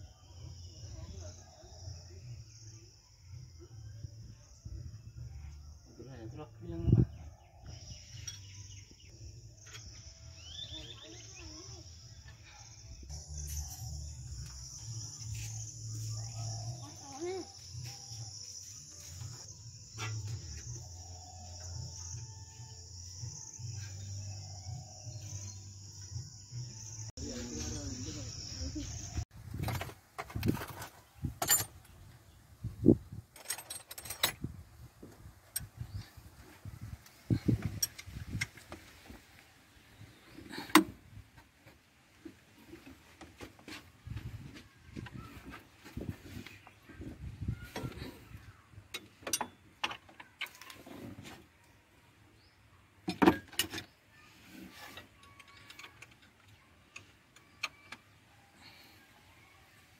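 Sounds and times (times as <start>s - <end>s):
metal tools clinking and rattling: 29.6s - 31.9s, 33.3s - 34.6s, 49.0s - 51.1s.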